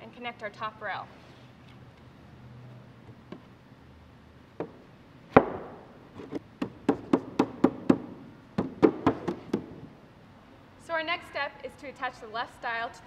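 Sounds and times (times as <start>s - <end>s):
rubber mallet knocking on wood: 4.6s - 9.8s.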